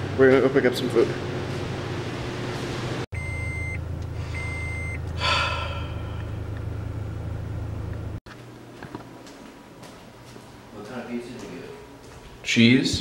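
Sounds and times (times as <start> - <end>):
car engine hum in cabin: 1.0 - 8.2
electronic beeps: 4.4 - 5.0
breathy gasp: 5.2 - 6.4.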